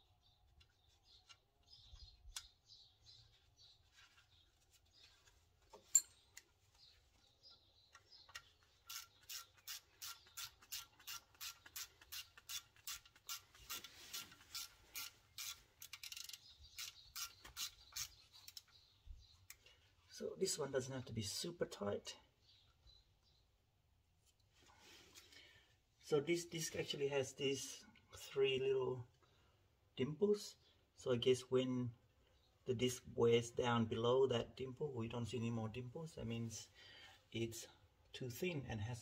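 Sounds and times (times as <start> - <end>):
hand ratchet clicking: 8.3 - 18.7.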